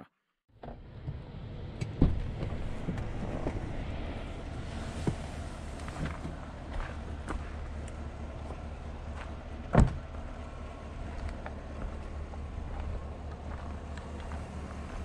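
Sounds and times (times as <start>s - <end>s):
low steady rumble: 0.5s - 15.0s
vehicle door thump: 9.7s - 10.0s.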